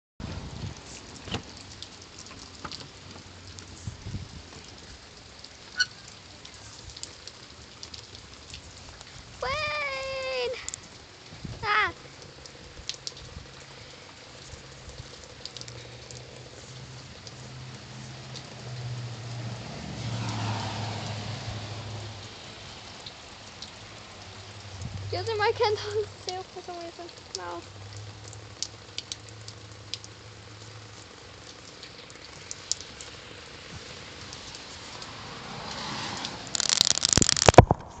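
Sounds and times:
rain pattering: 0.2s - 38.0s
drips clicking: 4.6s - 9.2s, 9.8s - 18.9s, 23.0s - 33.2s, 36.5s - 37.8s
crackling and thumps on microphone: 36.5s - 38.0s.

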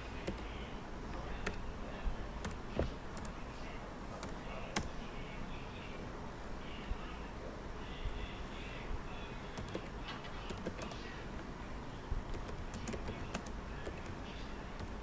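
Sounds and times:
steady background hiss: 0.0s - 15.0s
computer keyboard typing: 0.2s - 1.7s, 2.4s - 3.4s, 4.2s - 5.0s, 9.5s - 11.1s, 12.3s - 15.0s.

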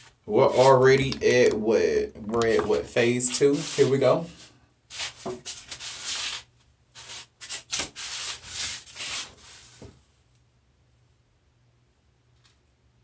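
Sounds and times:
scratchy rubbing strokes: 0.0s - 1.0s, 2.9s - 9.9s.

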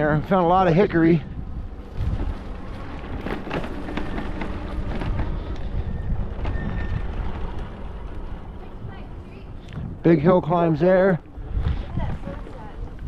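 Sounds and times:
low rumble: 0.0s - 13.0s
wind buffeting microphone: 0.0s - 13.0s
knocks and rattles: 2.0s - 8.2s.

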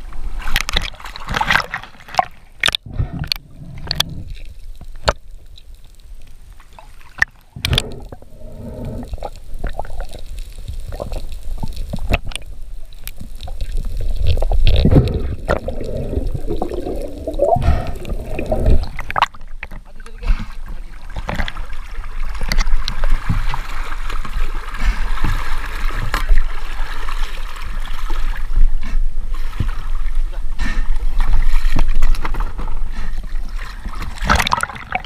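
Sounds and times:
fish thrashing water splashing: 0.5s - 2.8s, 33.6s - 35.0s
underwater gurgling and bubbling: 0.6s - 5.2s, 6.4s - 30.1s, 31.0s - 35.0s.

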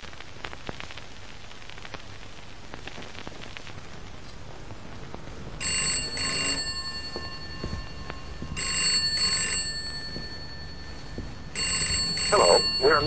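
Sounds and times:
faint crackle: 0.0s - 13.0s
telephone bell ringing: 5.6s - 13.0s.

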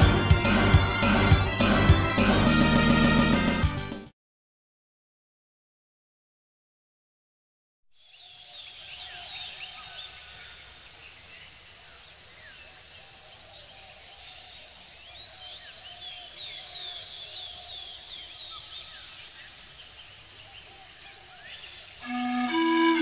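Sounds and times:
insects droning: 8.0s - 23.0s.

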